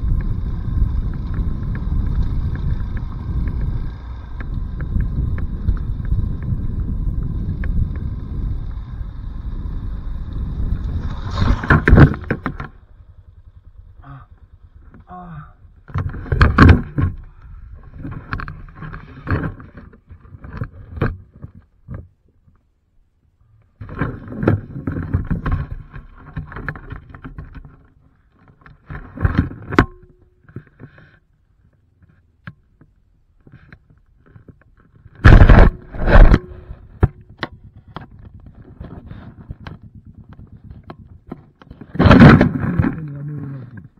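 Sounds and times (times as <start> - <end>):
knocks and scrapes: 10.7 - 12.9, 15.8 - 22.6, 23.8 - 43.9
motorcycle crashing onto rocks: 10.9 - 13.1, 15.8 - 17.2, 35.2 - 37.2, 40.6 - 43.1.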